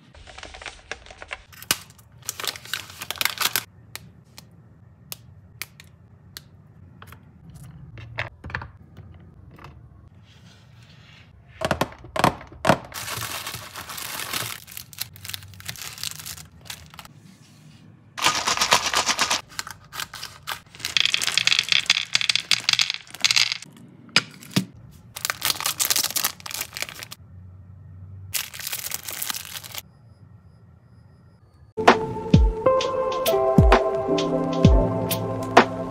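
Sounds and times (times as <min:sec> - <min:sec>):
foil wrapper crinkling: 0:00.2 - 0:03.7, 0:13.0 - 0:17.1, 0:18.2 - 0:22.0, 0:25.1 - 0:27.2, 0:28.4 - 0:29.8.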